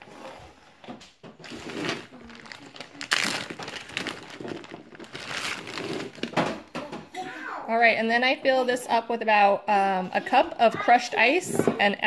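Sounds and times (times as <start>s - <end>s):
plastic bag crinkling: 1.4s - 6.6s.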